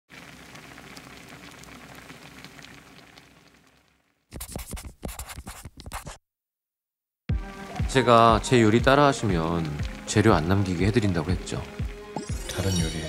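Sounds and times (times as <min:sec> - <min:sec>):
marker scratching on paper: 0:04.3 - 0:06.2.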